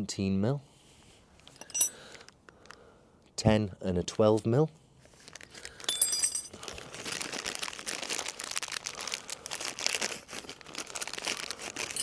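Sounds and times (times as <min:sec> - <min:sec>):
metal spanners clinking: 0:01.5 - 0:02.0, 0:05.9 - 0:06.6
plastic pouch crinkling: 0:05.1 - 0:05.9, 0:06.5 - 0:12.0.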